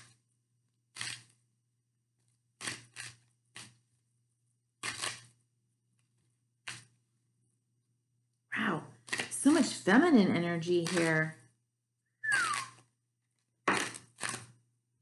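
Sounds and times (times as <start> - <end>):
cards being shuffled: 0.9 - 1.4, 2.6 - 3.8, 4.8 - 5.4, 6.6 - 6.9, 9.0 - 9.6, 10.8 - 11.3, 12.3 - 12.9, 13.7 - 14.6.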